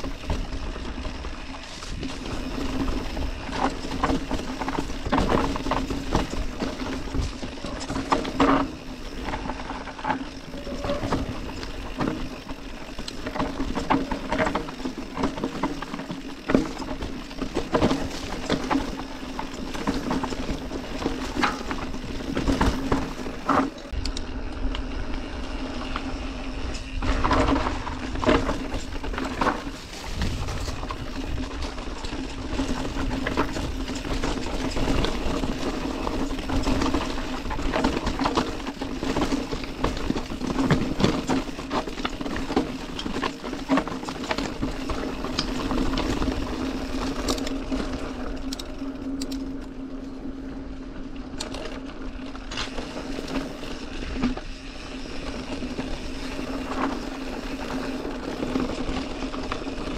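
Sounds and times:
bike knocking and rattling: 0.0s - 59.9s
tyres on dirt and stones: 0.0s - 59.9s.

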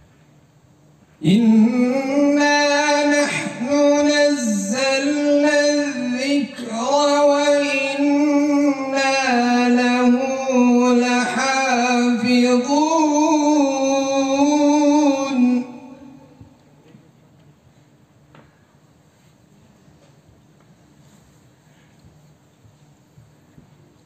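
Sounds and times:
person chanting recitation: 1.2s - 16.5s.

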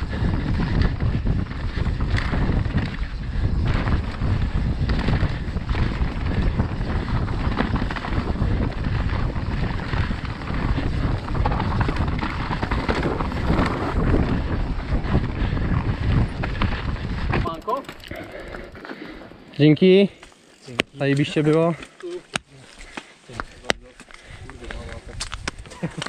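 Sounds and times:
wind buffeting microphone: 0.0s - 19.2s, 23.4s - 26.0s
tyres rolling on dirt: 0.0s - 22.0s, 22.8s - 26.0s
bike knocks and rattles: 0.1s - 18.8s.

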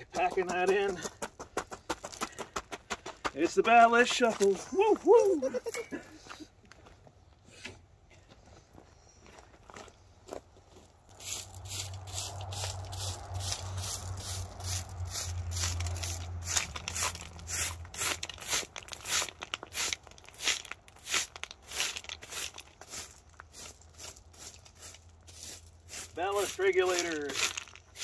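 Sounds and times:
stones rattling and crunching: 0.0s - 5.9s, 15.0s - 28.0s
broom sweeping stones: 3.4s - 5.9s, 11.1s - 28.0s.

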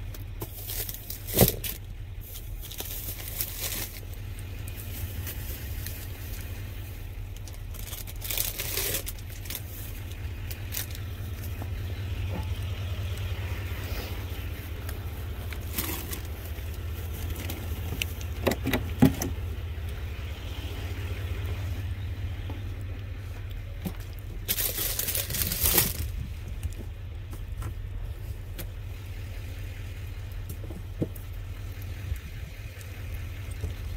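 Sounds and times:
idling engine rumble: 0.0s - 33.9s
boxes and bags rustling: 0.4s - 6.4s, 7.4s - 11.7s, 13.7s - 19.4s, 23.3s - 26.9s.

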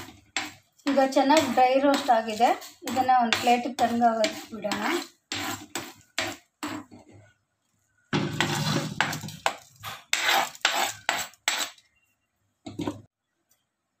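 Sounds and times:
ladle scraping iron pan: 0.0s - 7.2s, 8.2s - 11.8s.

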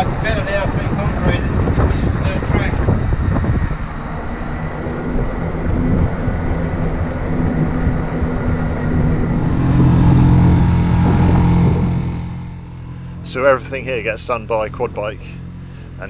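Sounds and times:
wind on microphone: 0.0s - 8.4s, 9.1s - 13.0s
quad bike engine: 2.4s - 16.0s.

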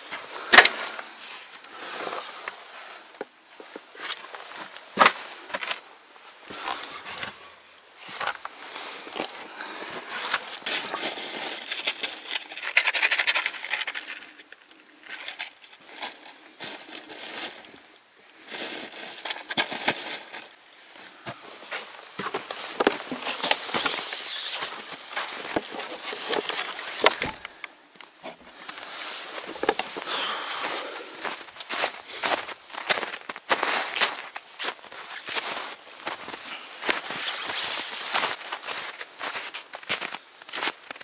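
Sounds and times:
dry hay rustling and crackling: 6.8s - 27.6s, 28.6s - 40.0s
bag crackling: 18.5s - 20.6s.

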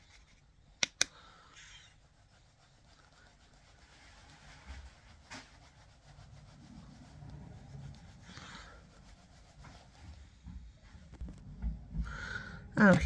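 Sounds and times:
makeup brush rubbing on skin: 1.6s - 10.6s.

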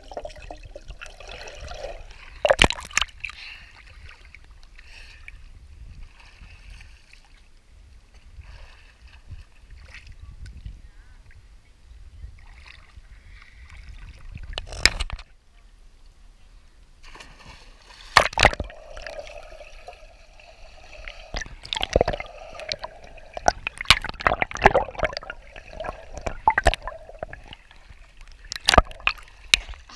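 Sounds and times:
pool water lapping and sloshing: 6.0s - 7.6s, 12.4s - 14.5s, 17.0s - 29.9s.

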